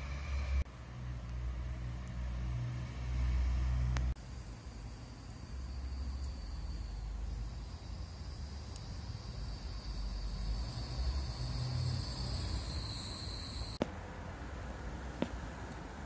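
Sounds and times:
high-pitched insect trill: 4.2s - 13.8s.

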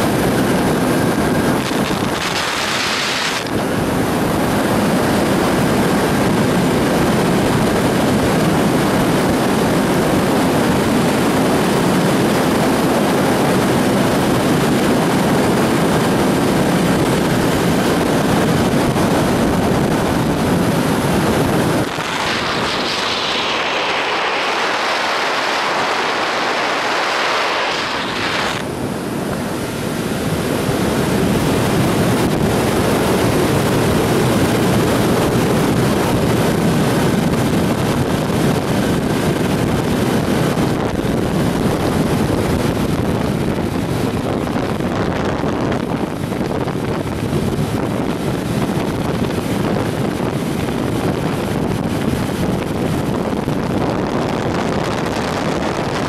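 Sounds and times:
wind rushing over microphone: 0.0s - 56.0s.

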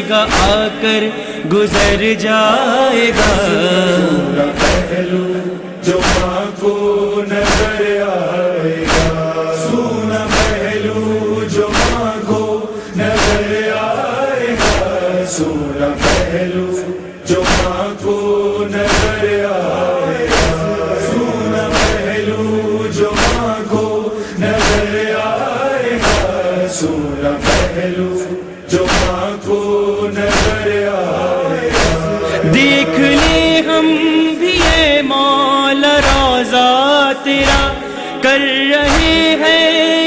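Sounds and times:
chorus chanting a lament: 0.0s - 40.0s
sharp steady beat: 20.2s - 22.5s, 31.6s - 35.0s.

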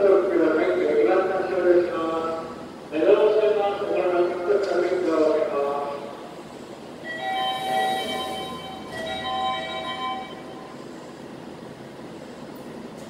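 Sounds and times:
station noise: 0.0s - 13.0s
electronic departure chime: 7.0s - 10.8s.

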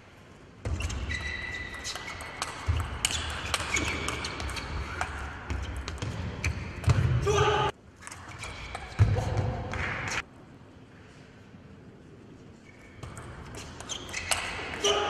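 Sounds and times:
shoes squeaking on floor: 0.7s - 5.0s, 12.6s - 14.6s.

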